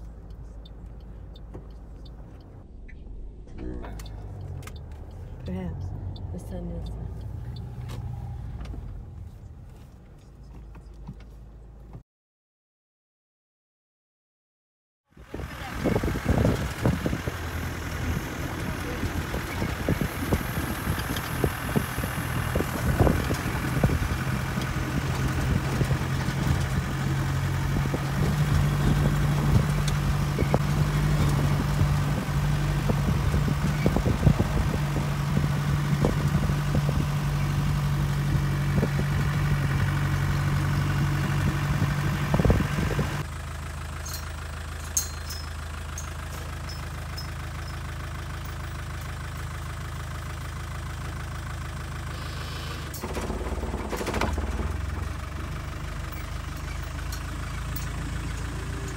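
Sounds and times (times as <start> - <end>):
vehicle engine running: 0.0 - 12.0, 15.1 - 58.9
vehicle body knocks and rattles: 52.9 - 58.0.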